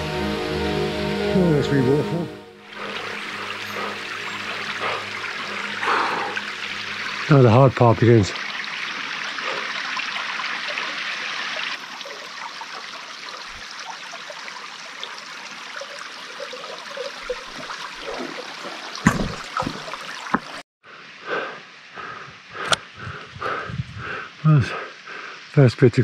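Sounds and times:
mountain stream rushing: 2.6s - 20.6s.

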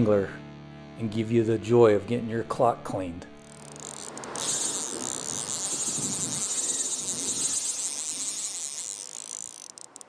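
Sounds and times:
insect chorus chirping: 3.4s - 10.0s.

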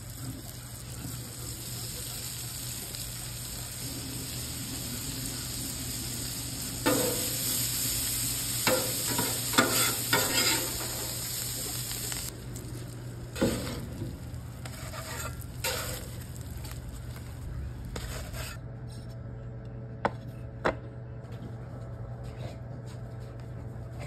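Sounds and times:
food sizzling on griddle: 0.0s - 18.4s
metal spatula scraping griddle: 8.6s - 11.1s, 14.6s - 16.2s, 18.0s - 18.6s.

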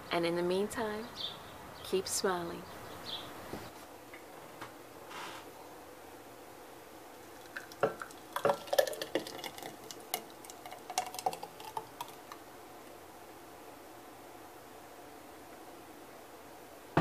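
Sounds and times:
thick smoothie pouring: 7.1s - 12.5s.

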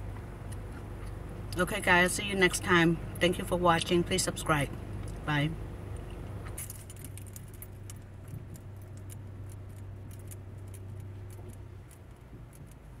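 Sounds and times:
steady low hum: 0.0s - 13.0s
keys clinking and rattling: 6.6s - 12.9s.

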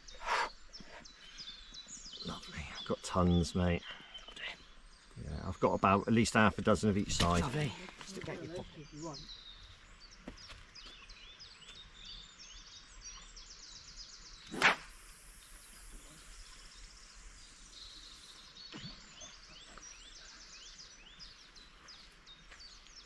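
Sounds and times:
birds singing: 0.0s - 23.0s
fishing rod swish: 14.5s - 14.9s.

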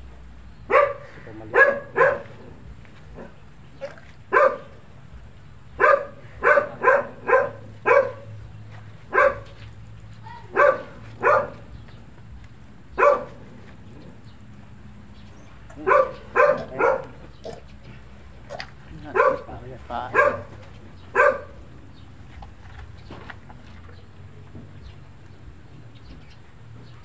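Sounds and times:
dog barking: 0.7s - 2.5s, 3.2s - 4.8s, 5.8s - 8.4s, 9.1s - 9.6s, 10.5s - 11.7s, 13.0s - 13.4s, 15.8s - 17.6s, 19.0s - 21.6s.

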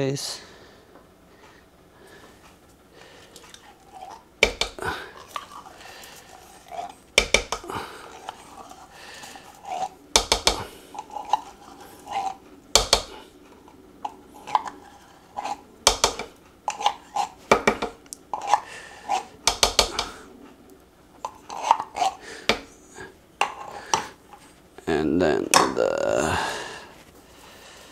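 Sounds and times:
utensil clacking and scraping: 3.2s - 24.6s.

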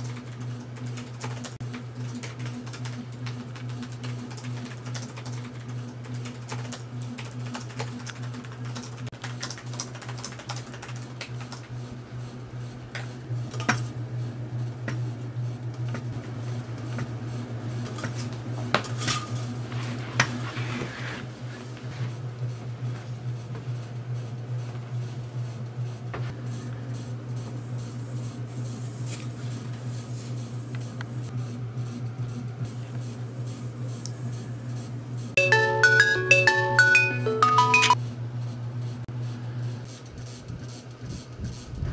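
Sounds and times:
laptop keyboard typing: 2.2s - 11.6s.

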